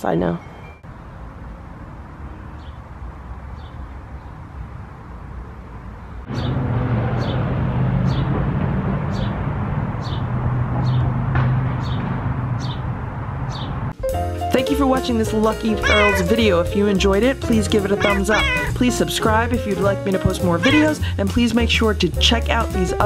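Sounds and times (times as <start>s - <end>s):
bird chirping: 15.8s - 16.4s, 17.9s - 18.8s, 20.6s - 21.0s.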